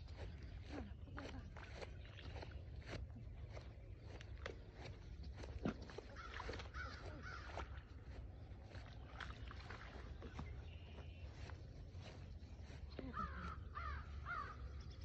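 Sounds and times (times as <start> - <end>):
harsh caw-like calls: 6.2 - 7.8, 13.1 - 14.8.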